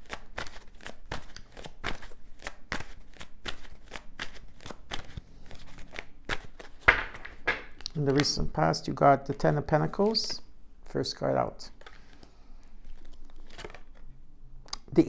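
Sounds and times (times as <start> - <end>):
cards being shuffled: 0.0 - 8.5, 11.7 - 14.2.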